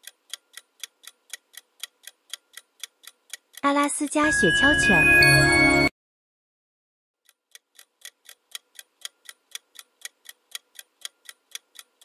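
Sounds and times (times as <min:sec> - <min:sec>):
clock ticking: 0:00.0 - 0:04.3, 0:07.2 - 0:12.0.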